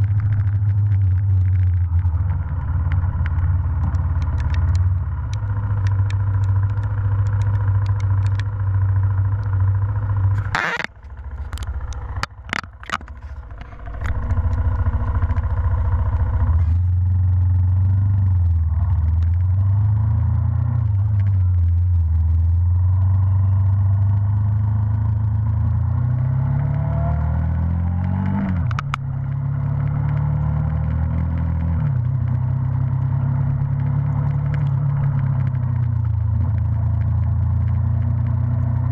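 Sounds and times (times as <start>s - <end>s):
sharp clicks: 0.0s - 8.7s, 10.3s - 15.9s, 28.0s - 29.1s
motorcycle engine running: 0.0s - 38.9s.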